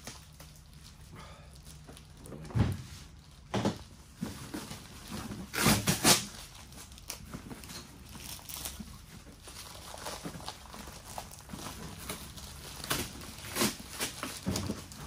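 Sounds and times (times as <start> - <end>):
packaging scraping and rustling: 4.1 - 15.0.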